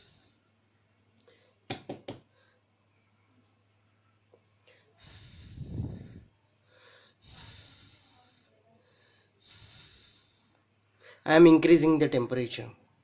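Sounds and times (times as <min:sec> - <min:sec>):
breathy puffs of air: 0:04.8 - 0:11.2.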